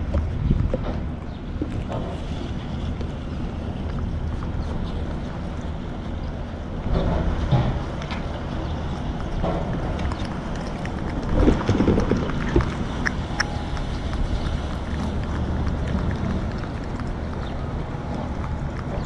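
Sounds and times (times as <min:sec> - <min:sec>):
low outdoor rumble: 0:00.0 - 0:19.0
cat tongue licking clicks: 0:09.2 - 0:19.0.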